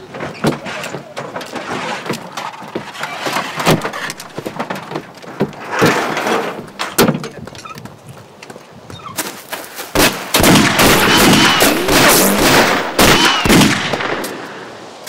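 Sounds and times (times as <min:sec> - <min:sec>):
scuffing and clattering: 0:00.0 - 0:10.1.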